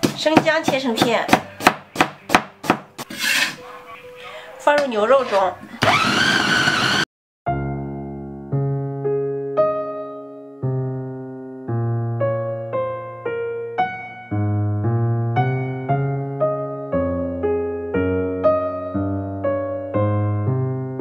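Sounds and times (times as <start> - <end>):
slow piano music: 7.5 - 21.0.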